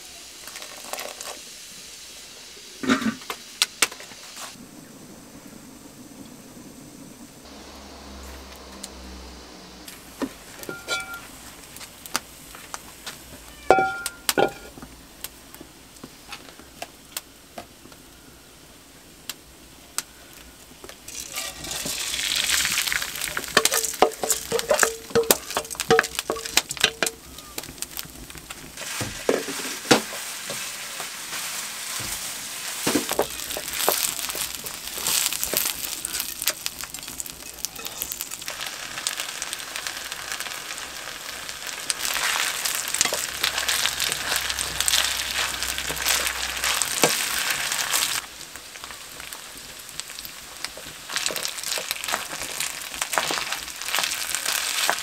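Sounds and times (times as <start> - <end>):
rice sizzling in a pan: 0.0 - 55.0
wooden spoon scraping and clicking: 41.8 - 48.2.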